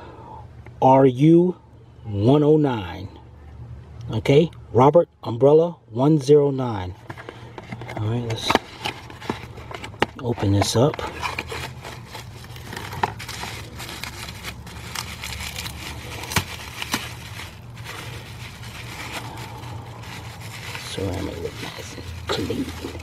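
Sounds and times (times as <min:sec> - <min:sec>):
steady low hum: 0:00.0 - 0:23.0
cardboard box rustling: 0:07.0 - 0:23.0
bubble wrap crinkling: 0:08.4 - 0:23.0.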